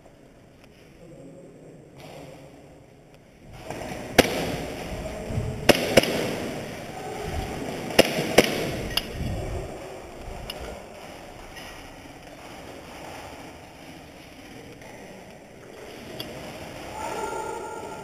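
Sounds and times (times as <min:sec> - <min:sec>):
airsoft gunshots: 0:05.6 - 0:06.7, 0:07.9 - 0:08.9.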